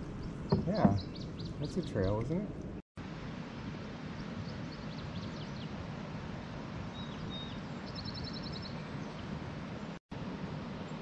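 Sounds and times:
songbird calls: 0:00.0 - 0:02.4, 0:04.1 - 0:05.8, 0:06.9 - 0:09.9.

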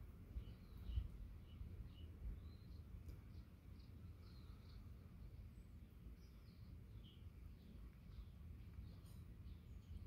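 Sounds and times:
wind rumble on microphone: 0:00.0 - 0:04.8
small bird chirping: 0:00.3 - 0:10.0.

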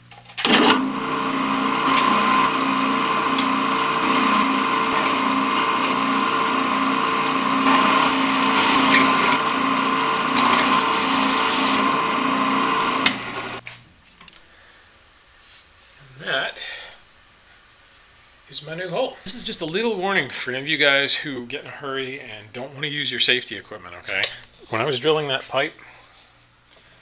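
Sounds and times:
drill press cutting steel pipe: 0:00.4 - 0:13.6.

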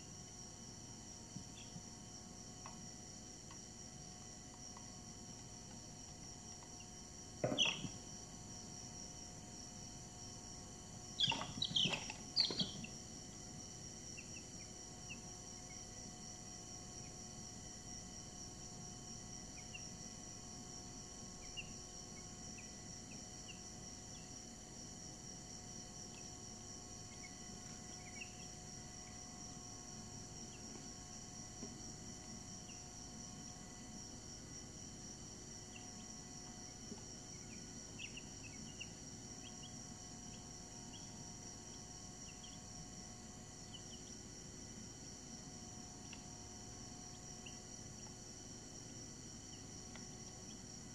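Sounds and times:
steady high-pitched whine: 0:00.0 - 0:50.9
chicks peeping: 0:07.4 - 0:08.0, 0:11.2 - 0:13.0.

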